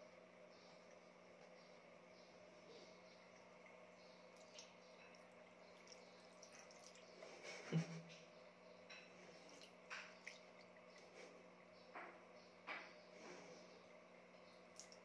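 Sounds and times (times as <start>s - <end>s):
water drips and splashes: 3.3s - 7.3s, 9.2s - 11.1s, 14.6s - 15.0s.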